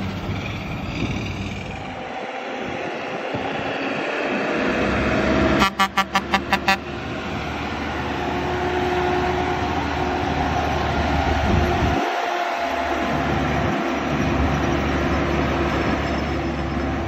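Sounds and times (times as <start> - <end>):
diesel truck passing by: 0.0 - 17.0
truck air horn blasts: 5.5 - 7.0.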